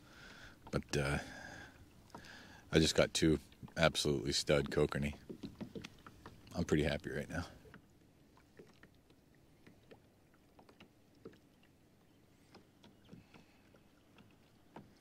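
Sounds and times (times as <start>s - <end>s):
water lapping against hull: 0.0s - 15.0s
faint light ticks: 0.2s - 2.5s.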